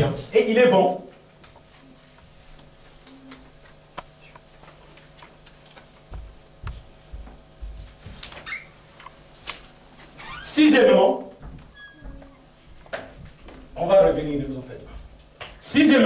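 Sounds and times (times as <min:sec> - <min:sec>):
soft low thumps: 0:06.1 - 0:08.0.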